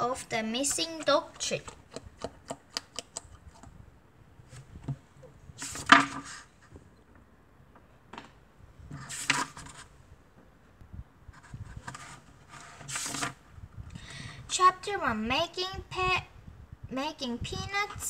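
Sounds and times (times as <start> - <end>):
book pages turning: 5.6 - 6.5, 8.9 - 9.9, 11.7 - 13.4.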